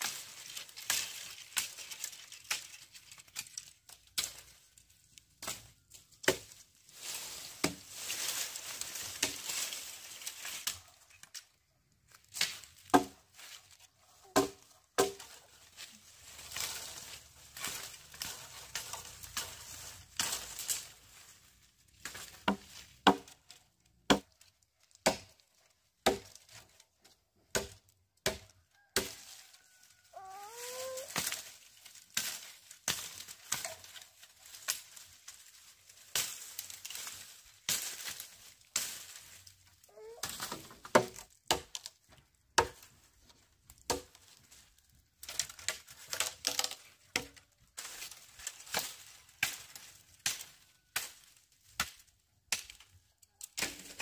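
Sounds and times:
blade chopping sugarcane: 5.4 - 6.6, 7.6 - 7.9, 12.3 - 13.2, 14.3 - 15.4, 22.0 - 23.4, 24.1 - 24.3, 25.0 - 25.4, 26.0 - 26.5, 27.5 - 29.2, 40.2 - 41.9, 42.6 - 42.9, 43.9 - 44.2.

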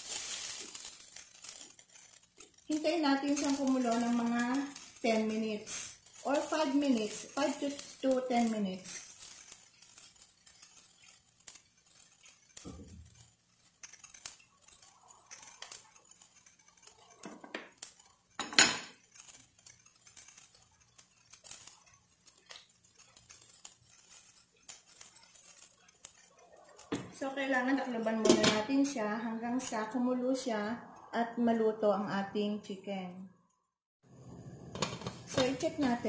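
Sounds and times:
kitchenware clicks and clinks: 11.8 - 30.0, 34.7 - 36.0.

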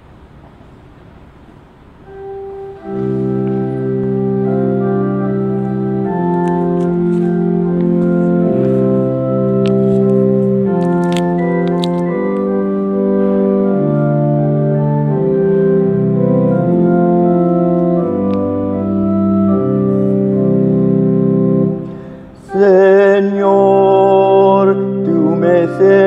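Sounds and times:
organ playing sustained chords: 0.0 - 26.0
man singing with vibrato: 22.4 - 26.0.

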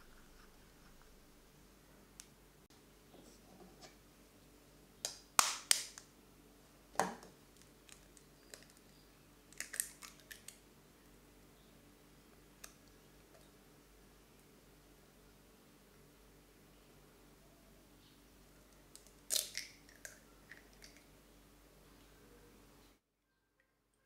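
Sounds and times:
eggshell cracking: 7.5 - 10.6, 18.9 - 21.1.

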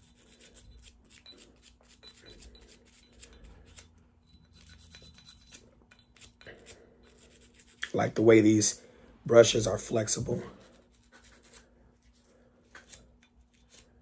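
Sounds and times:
brush scrubbing metal: 0.0 - 3.9, 4.5 - 8.0, 10.5 - 13.9.

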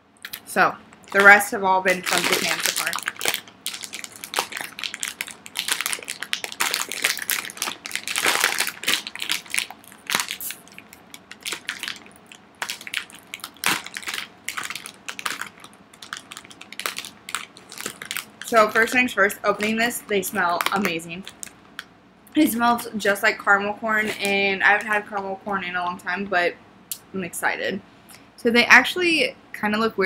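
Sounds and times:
plastic snack bag crinkling: 0.2 - 21.8, 24.0 - 25.0.

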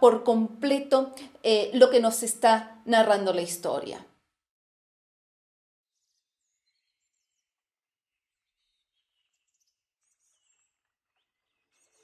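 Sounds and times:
small birds chirping: 6.0 - 7.5, 8.3 - 12.0.

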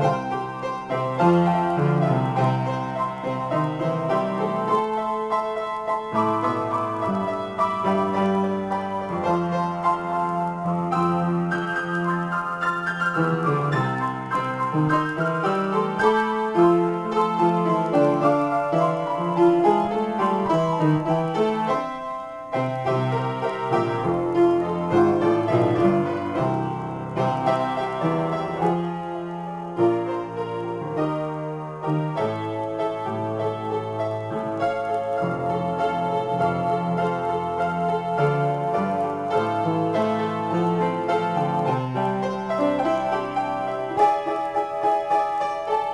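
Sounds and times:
solo piano improvisation: 0.0 - 45.9.

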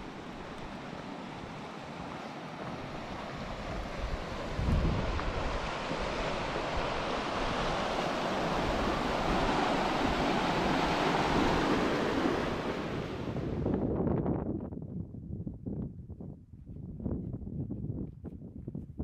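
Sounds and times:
creek rushing over rocks: 0.0 - 13.1
wind rumble on microphone: 0.0 - 19.0.

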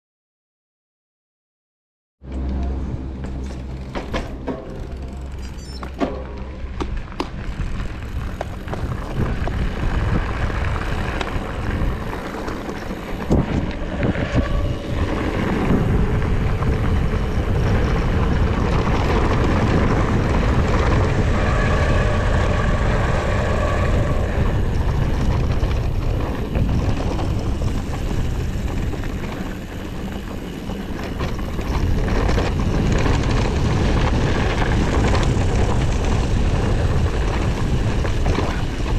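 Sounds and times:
wind rumbling on camera: 2.4 - 38.9
bike knocks: 3.2 - 7.6
tyres rolling over gravel: 3.2 - 38.9.

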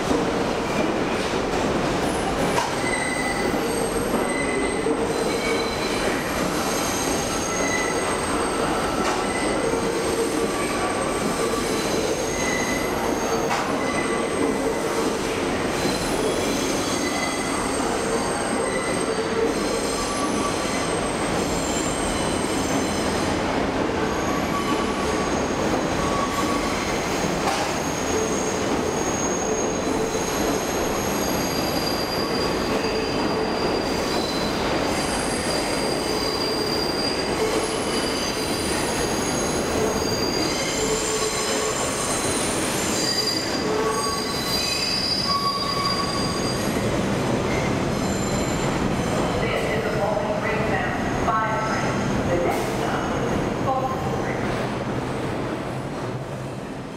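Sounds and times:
train wheels rumbling on rail: 0.0 - 56.9
high-pitched wheel squeal: 2.8 - 6.1, 6.7 - 9.7, 15.8 - 23.0, 31.0 - 46.8.

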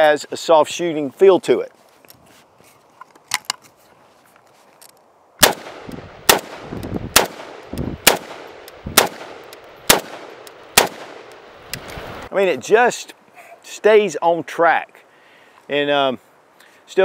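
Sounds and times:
rifle single shots with echo: 5.4 - 11.6.

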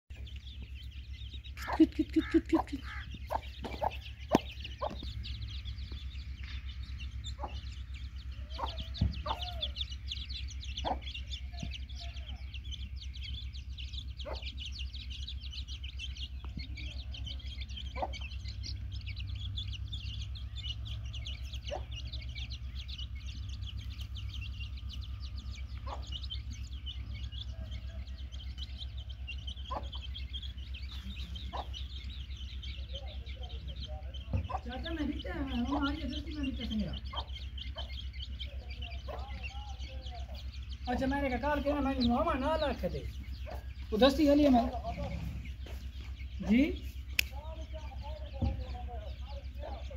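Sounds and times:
chicks peeping: 0.1 - 49.9
hen clucking: 0.1 - 49.9.

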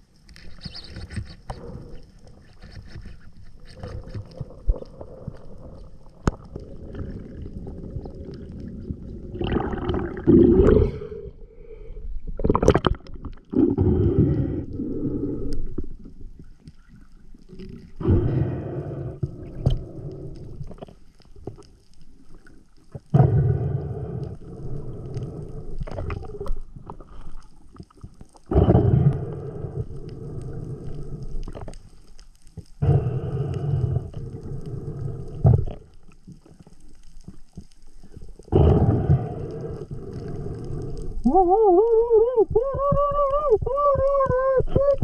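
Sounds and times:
water gurgling underwater: 3.7 - 11.3, 12.2 - 21.7, 38.4 - 45.0.

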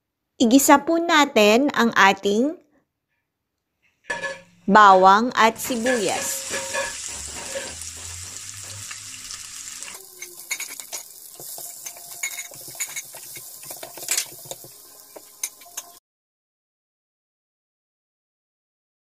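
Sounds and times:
utensil scraping a pan: 4.1 - 4.6, 5.6 - 16.0
onions sizzling in oil: 5.6 - 16.0.

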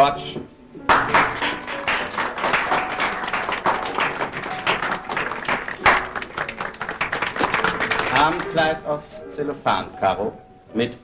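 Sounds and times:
soft background music: 0.0 - 11.0
audience applauding: 0.9 - 9.0.

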